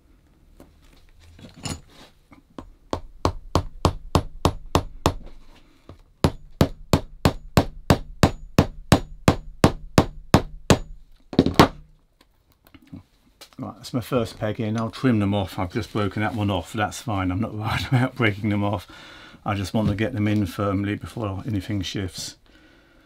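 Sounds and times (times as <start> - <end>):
hammer tapping peg into leather: 2.6 - 5.3
loud knock: 6.3 - 11.8.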